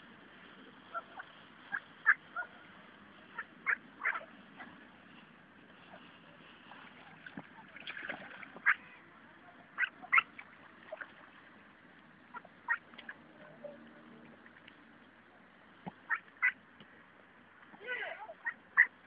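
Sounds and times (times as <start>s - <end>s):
ducks calling: 0.9s - 4.8s, 9.7s - 10.4s, 12.3s - 13.8s, 15.8s - 16.6s, 18.3s - 19.0s.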